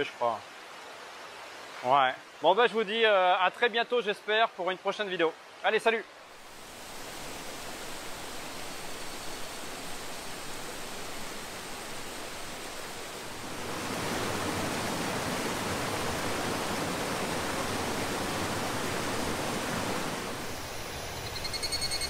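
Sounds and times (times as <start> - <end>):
waterfall rushing: 6.2 - 21.3
pulsing high-pitched buzz: 20.3 - 22.0.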